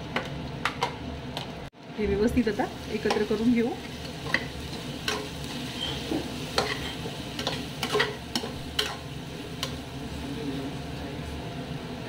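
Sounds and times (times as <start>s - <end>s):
food sizzling: 0.0s - 12.0s
metal spoon scraping pot: 5.1s - 9.0s.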